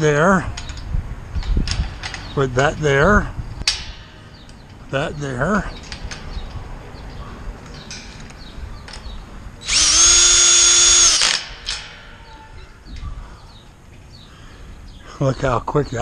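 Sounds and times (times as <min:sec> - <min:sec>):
drill motor whining: 0:09.6 - 0:11.4.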